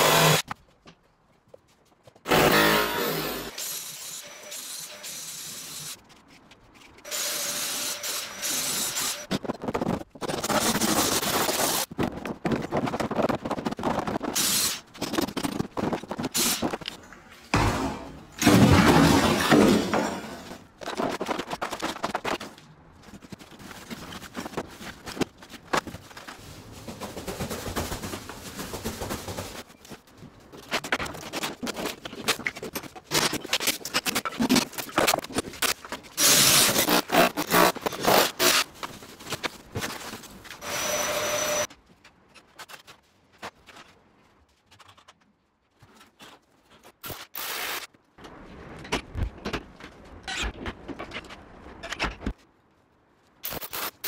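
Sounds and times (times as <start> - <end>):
boards dragged across floor: 17.5 - 20.7
debris knocking and clattering: 17.5 - 22.4
plasterboard crashing: 17.5 - 22.4.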